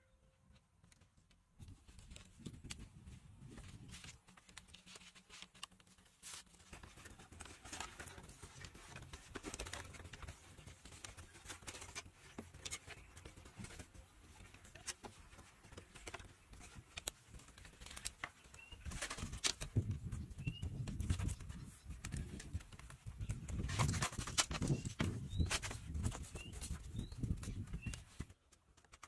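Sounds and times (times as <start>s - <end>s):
bamboo strips clicking: 14.6s - 19.8s.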